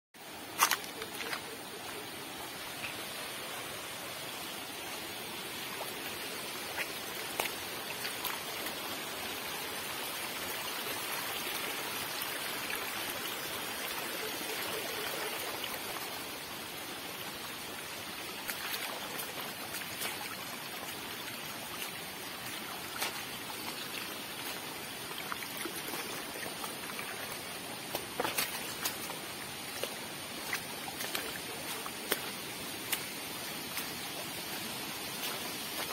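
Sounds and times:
water trickling over rocks: 0.2s - 35.9s
footsteps on wet stones: 0.4s - 2.1s, 6.0s - 8.7s, 18.4s - 35.9s.

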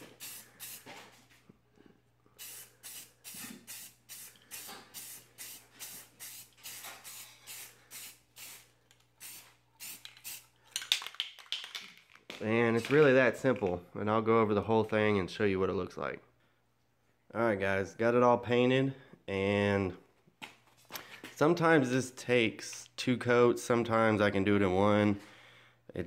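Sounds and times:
spray paint can hissing: 0.0s - 0.9s, 2.4s - 10.5s.

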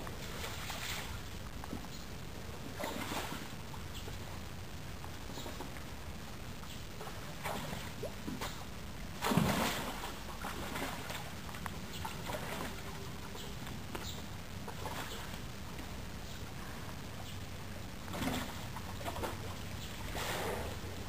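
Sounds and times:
water sloshing and splashing: 0.0s - 4.4s, 7.0s - 16.0s, 18.0s - 21.0s
low hum: 0.0s - 21.0s.

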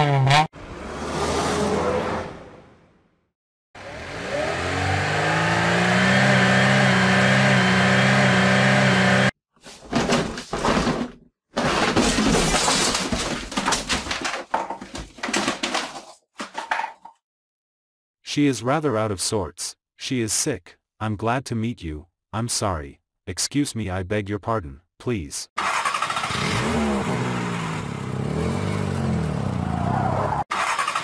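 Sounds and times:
car engine revving: 3.8s - 9.3s.

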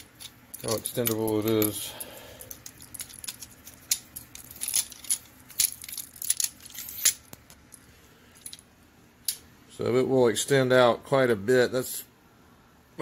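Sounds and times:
metal clicks and rattles: 0.0s - 7.8s.

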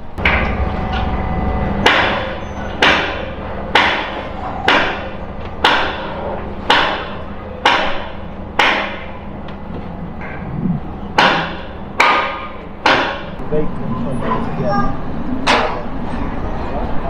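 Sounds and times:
hammer striking metal: 0.2s - 9.2s, 11.2s - 13.4s.

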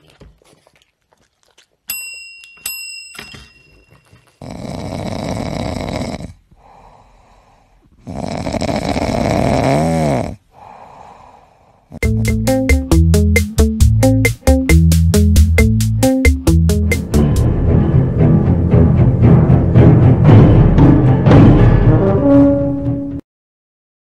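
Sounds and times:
service bell dinging: 1.9s - 4.0s
dog snoring loudly: 4.4s - 6.4s, 8.0s - 10.4s.

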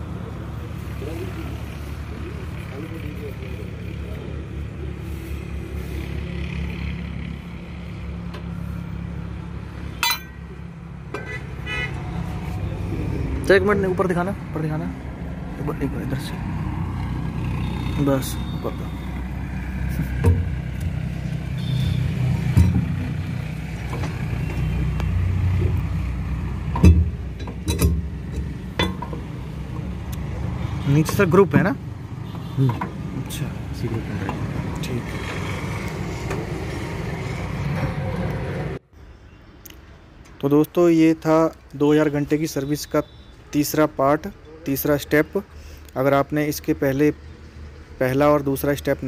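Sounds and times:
metal cover clanking: 10.0s - 10.4s, 22.5s - 23.2s, 26.7s - 29.2s
ringing metallic clink: 10.0s - 10.4s
low engine rumble: 18.1s - 38.8s.

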